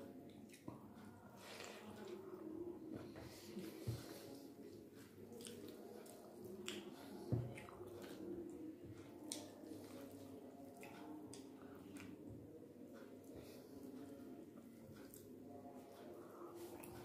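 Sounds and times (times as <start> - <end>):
mouth smacking while chewing: 5.1 - 8.2, 9.2 - 10.0.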